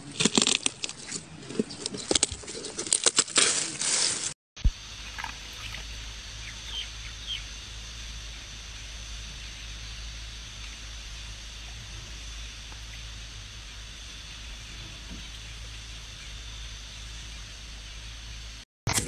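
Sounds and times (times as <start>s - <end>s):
low hum: 4.6s - 19.0s
high bird chirps: 5.0s - 7.7s.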